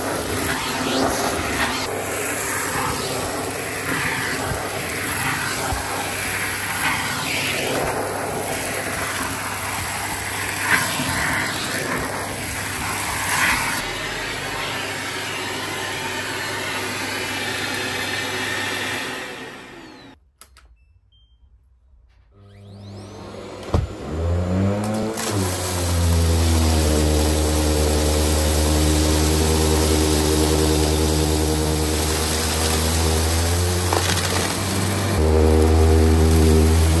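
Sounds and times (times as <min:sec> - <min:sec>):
grit crackling in vacuum: 0:00.0 - 0:16.6, 0:24.8 - 0:37.0
vacuum cleaner running: 0:00.0 - 0:20.2, 0:22.4 - 0:37.0.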